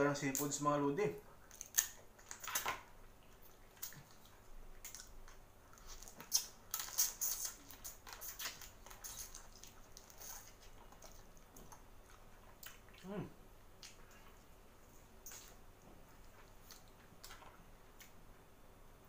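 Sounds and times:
shells crackling being peeled: 0:01.5 - 0:02.8, 0:04.8 - 0:10.6
wet sucking and chewing: 0:03.2 - 0:13.2, 0:13.8 - 0:18.2.

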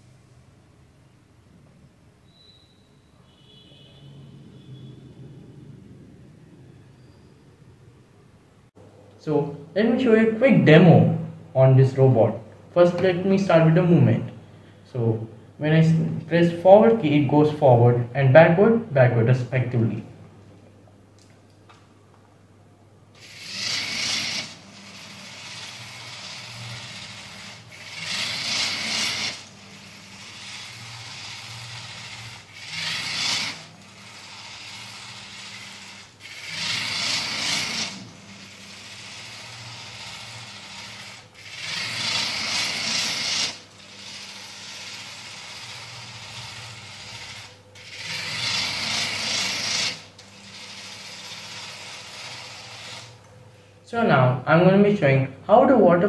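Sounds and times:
steady low hum: 0:02.8 - 0:56.0
geared motors whirring: 0:23.2 - 0:53.5.

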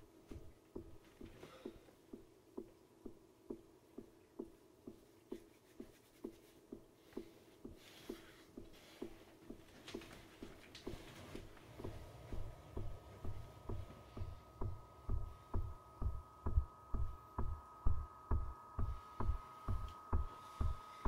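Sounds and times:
faint dull ticking: 0:00.3 - 0:21.0
rustling of bedclothes: 0:04.9 - 0:14.6.

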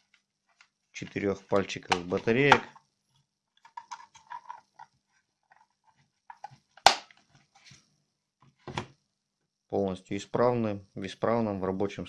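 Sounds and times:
plastic clicks and rattles: 0:03.6 - 0:07.3
sharp plastic snap: 0:06.8 - 0:07.1.

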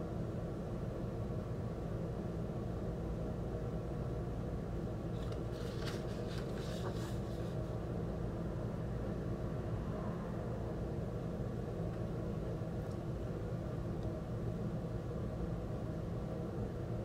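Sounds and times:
low background hum: 0:00.0 - 0:17.0
paper rustling: 0:05.2 - 0:07.7.

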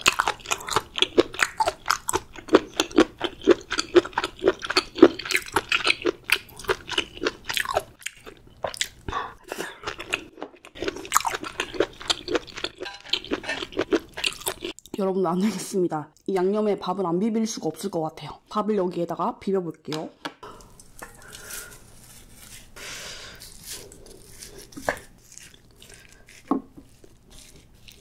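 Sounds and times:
crunchy chewing: 0:00.0 - 0:14.8, 0:23.3 - 0:28.0.

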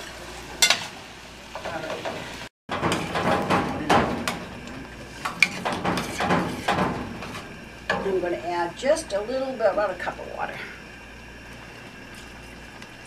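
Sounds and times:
metal spoon stirring in a pot: 0:02.7 - 0:08.1.

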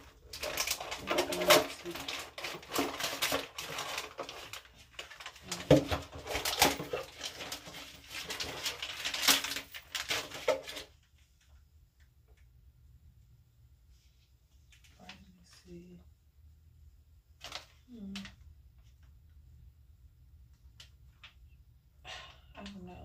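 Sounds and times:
plastic packets crinkling: 0:00.0 - 0:11.0, 0:17.4 - 0:18.4.

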